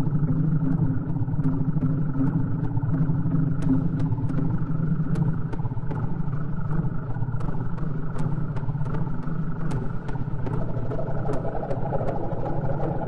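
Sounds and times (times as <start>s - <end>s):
engine-like low rumble: 7.1s - 13.0s.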